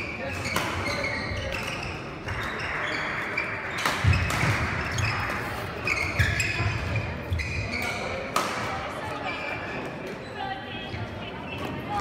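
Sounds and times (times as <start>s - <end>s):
sports shoes squeaking: 0.0s - 8.3s
racket hitting shuttlecock: 0.3s - 2.9s, 3.7s - 5.4s, 7.7s - 8.8s.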